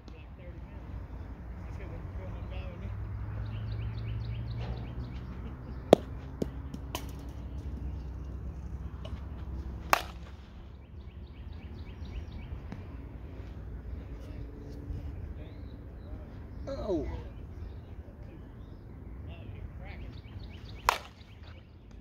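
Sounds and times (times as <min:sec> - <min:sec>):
softball bat cracks: 0:05.9 - 0:07.8, 0:09.8 - 0:10.6, 0:20.8 - 0:21.4.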